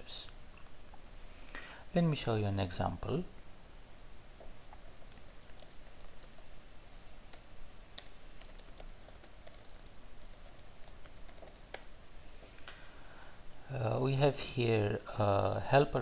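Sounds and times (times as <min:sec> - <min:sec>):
computer keyboard typing: 0:04.8 - 0:06.5, 0:07.3 - 0:11.9.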